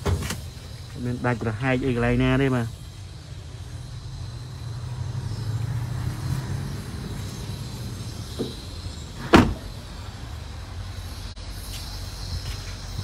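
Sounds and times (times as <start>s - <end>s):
car door slamming shut: 0.0s - 0.4s, 9.2s - 9.8s.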